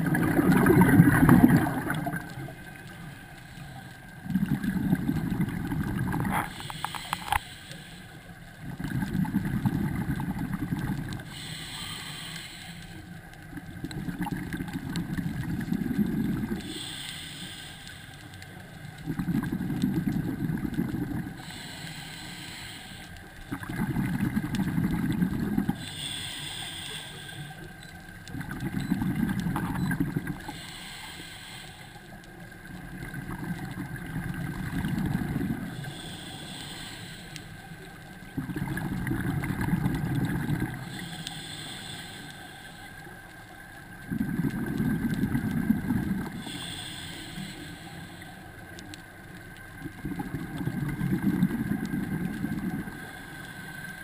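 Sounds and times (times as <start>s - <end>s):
exhaled bubbles rushing: 0.0s - 2.7s, 4.2s - 6.5s, 8.6s - 11.2s, 19.0s - 21.3s, 23.5s - 25.8s, 38.3s - 40.8s, 44.0s - 46.4s
regulator inhale hiss: 1.8s - 4.2s, 6.4s - 8.9s, 11.0s - 13.7s, 16.4s - 19.0s, 21.2s - 24.9s, 25.6s - 27.8s, 30.2s - 32.6s, 34.8s - 38.3s, 39.8s - 43.6s, 45.6s - 49.2s, 52.8s - 54.0s.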